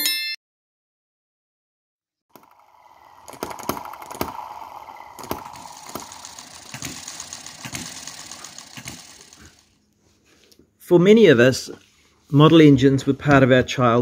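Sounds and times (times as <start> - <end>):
small model engine clattering: 2.3 - 9.8.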